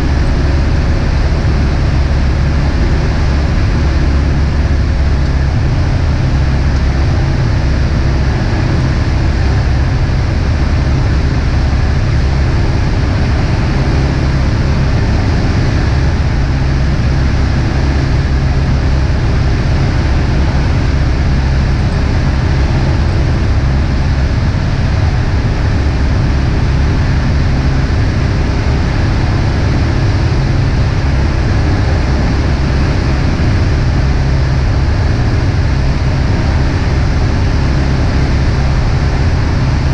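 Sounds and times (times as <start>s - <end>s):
airplane engine hum in cabin: 0.0s - 39.9s
rushing air noise: 0.0s - 39.9s.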